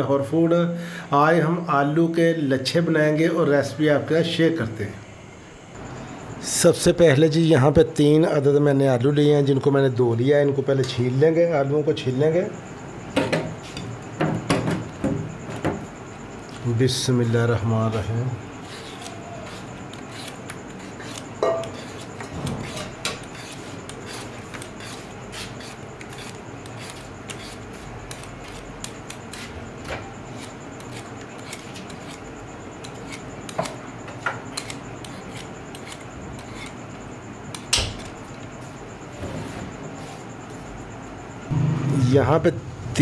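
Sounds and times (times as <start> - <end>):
peeler scraping potatoes: 17.8 - 38.3.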